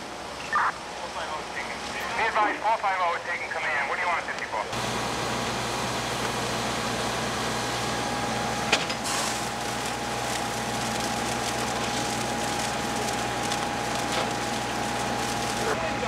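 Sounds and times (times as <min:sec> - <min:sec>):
diesel engine droning: 0:04.7 - 0:16.0
hiss: 0:08.9 - 0:12.5.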